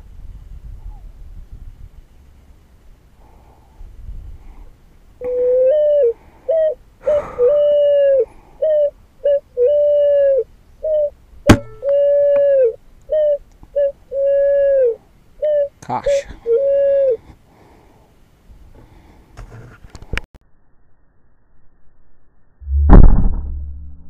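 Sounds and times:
electronic pigeon cooing: 5.2 - 15.8, 16.4 - 17.2
sharp crack: 11.5 - 12.0, 22.7 - 24.0.

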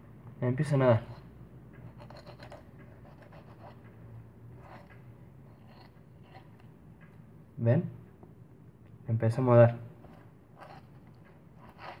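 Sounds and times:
knife scratching along fish bones: 1.1 - 3.9, 4.6 - 6.7, 10.0 - 12.0.

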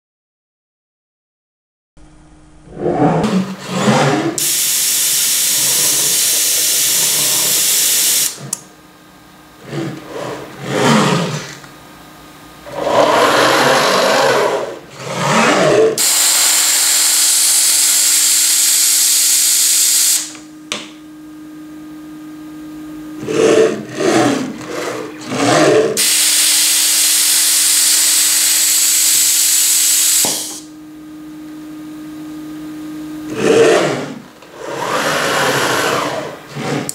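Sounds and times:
steady hum: 2.0 - 36.9
machine axis drives whining: 2.1 - 8.6, 23.0 - 30.8, 32.1 - 36.9
loud air hiss: 4.4 - 8.4, 16.0 - 20.3, 26.0 - 30.7.

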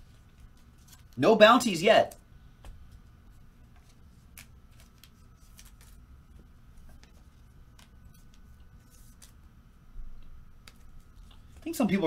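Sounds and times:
steady low hum: 0.0 - 12.0
trading cards clicking and rustling: 3.7 - 9.4.

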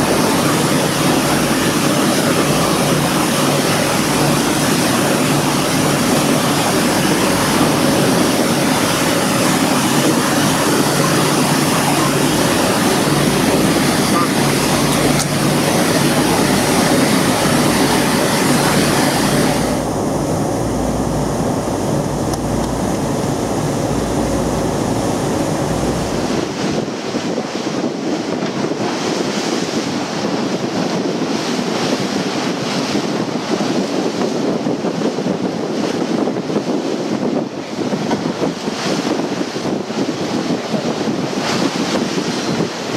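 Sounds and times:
choppy sea water rushing: 0.0 - 42.9
wind on microphone: 0.0 - 42.9
deep low rumble: 17.8 - 26.4.

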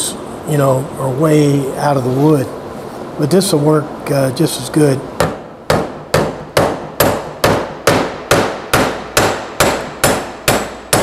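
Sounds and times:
hammer striking nails into metal: 5.2 - 11.0.

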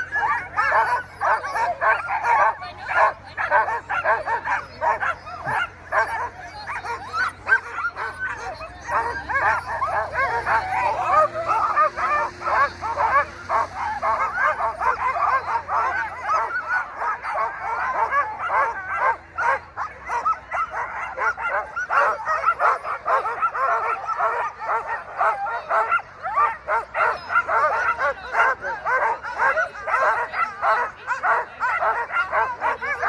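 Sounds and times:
dogs yelping and barking: 0.0 - 33.0.

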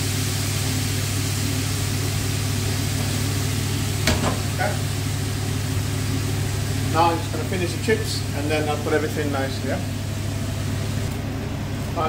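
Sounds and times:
kitchen appliance humming: 0.0 - 12.0
wok knocking on metal grate: 4.0 - 4.5.

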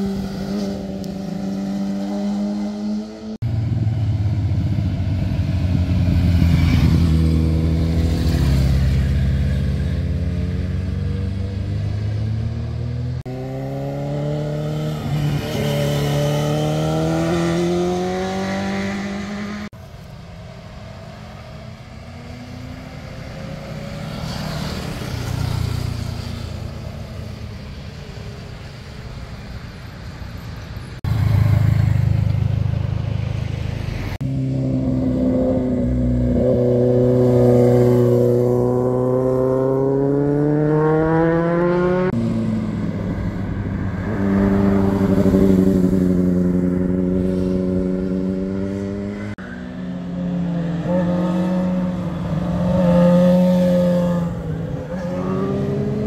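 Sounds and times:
motorcycle engines accelerating: 0.0 - 28.6, 31.1 - 56.0.

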